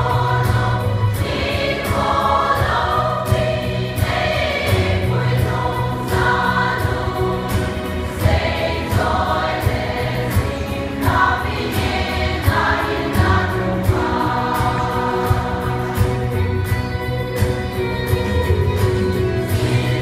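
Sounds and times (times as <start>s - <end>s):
choir singing: 0.0s - 16.9s, 19.4s - 20.0s.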